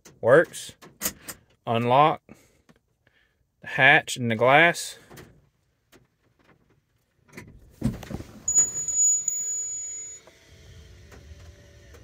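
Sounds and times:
beeps: 8.5s - 10.2s
high steady tone: 8.5s - 10.2s.

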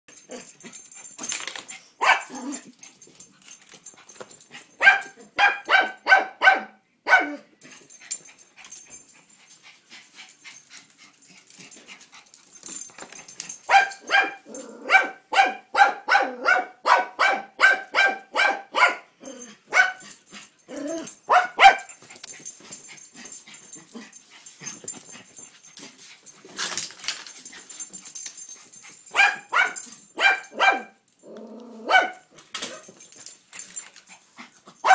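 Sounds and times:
small dog barking: 2.0s - 2.6s, 4.8s - 7.5s, 13.7s - 19.1s, 19.7s - 20.0s, 21.3s - 21.9s, 29.1s - 31.0s, 31.8s - 32.3s.

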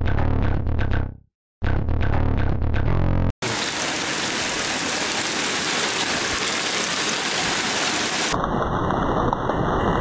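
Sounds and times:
heavy rain hissing: 3.4s - 8.4s.

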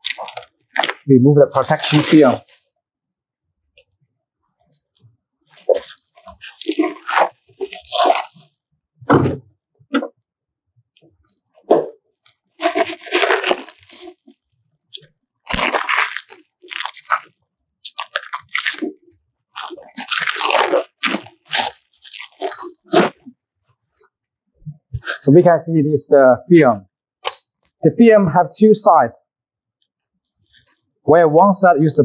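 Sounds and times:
plastic wrap crinkling: 0.0s - 2.7s, 4.7s - 8.5s, 12.5s - 23.3s.

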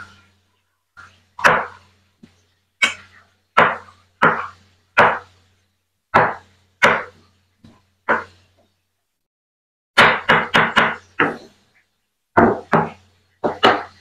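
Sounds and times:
knife chopping on wooden board: 1.0s - 5.3s, 6.1s - 8.4s, 10.0s - 11.6s, 12.4s - 14.0s.

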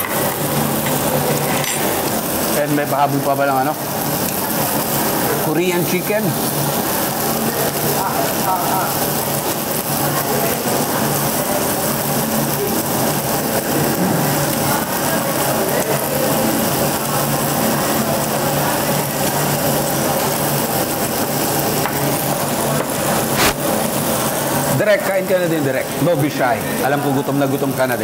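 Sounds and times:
mechanical hum: 0.0s - 28.0s
dense hiss: 23.2s - 23.8s.

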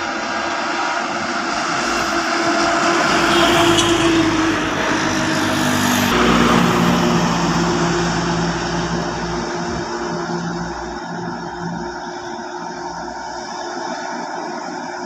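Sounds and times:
truck engine passing: 0.1s - 13.5s
motorcycle passing: 1.0s - 13.0s.

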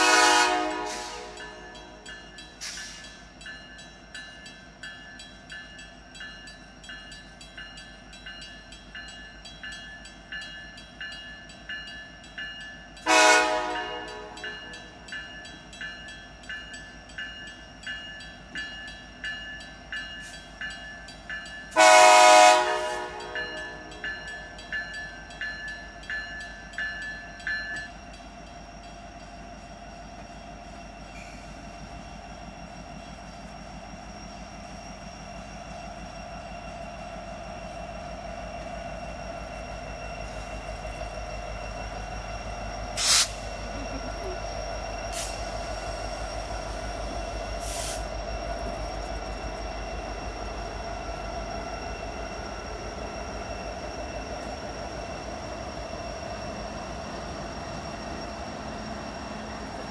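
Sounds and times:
train horn blast: 0.0s - 2.0s, 13.0s - 14.5s, 21.8s - 23.9s
crossing warning bell dinging: 0.0s - 59.9s
locomotive engine and rolling wheels: 0.0s - 59.9s.

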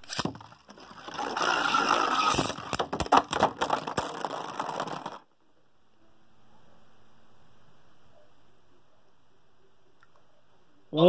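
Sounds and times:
spinning tops whirring and scraping: 0.0s - 5.2s.

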